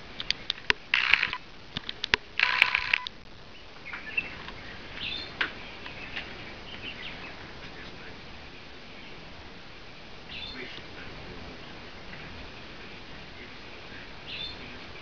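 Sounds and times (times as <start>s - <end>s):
loud harsh bursts: 0.8s - 3.3s.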